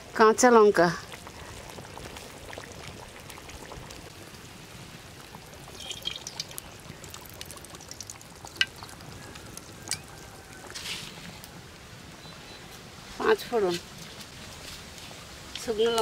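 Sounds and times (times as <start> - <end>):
curry simmering with soft hiss: 0.0 - 16.0
oil pouring into wok: 5.0 - 10.1.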